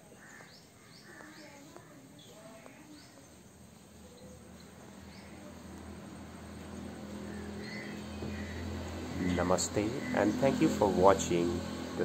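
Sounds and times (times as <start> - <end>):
bird chirps: 7.2 - 10.4.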